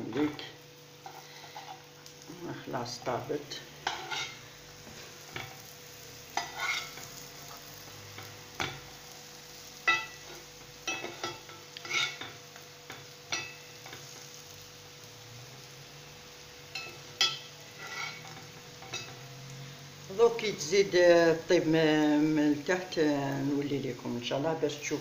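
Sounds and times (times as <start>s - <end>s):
faint steady sizzle: 0.0s - 25.0s
metal spatula scraping on griddle: 0.1s - 2.1s, 3.8s - 14.6s, 16.7s - 19.6s.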